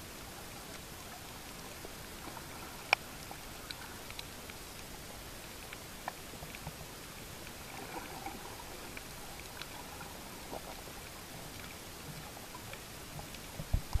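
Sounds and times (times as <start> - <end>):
small clicks: 1.8 - 5.0.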